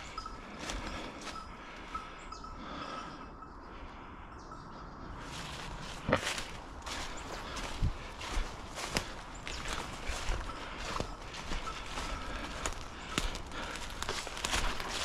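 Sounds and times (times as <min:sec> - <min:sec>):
footsteps through undergrowth: 0:00.0 - 0:02.0, 0:05.2 - 0:15.0
loud crunch: 0:05.9 - 0:15.0.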